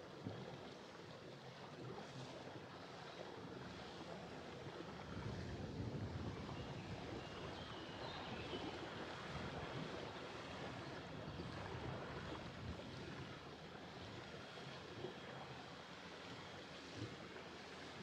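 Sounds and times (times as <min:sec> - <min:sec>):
wind buffeting microphone: 0:05.0 - 0:08.5.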